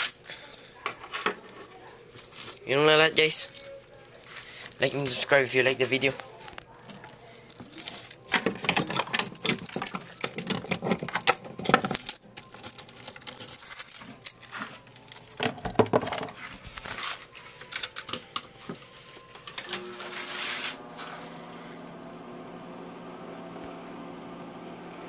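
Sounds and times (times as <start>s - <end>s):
small hard objects clinking and rattling: 7.2s - 18.0s.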